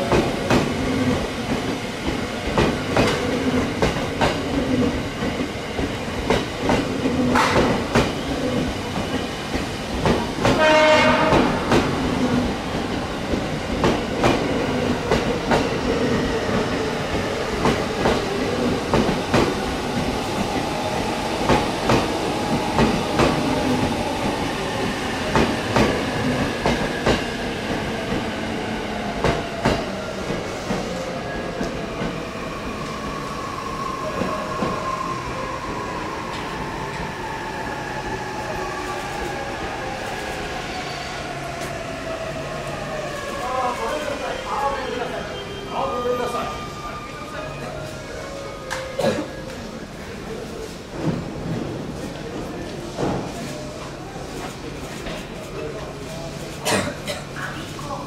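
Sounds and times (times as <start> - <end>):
clickety-clack of rail joints: 0.0 - 12.4, 13.3 - 15.7, 29.2 - 31.0, 51.0 - 53.6, 54.3 - 57.7
short pitched horn blast: 10.6 - 11.6.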